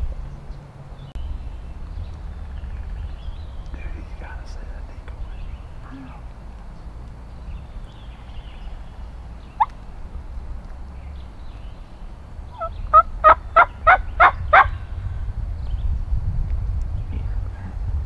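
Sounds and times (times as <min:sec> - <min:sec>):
turkey yelping: 0:12.5 - 0:14.8.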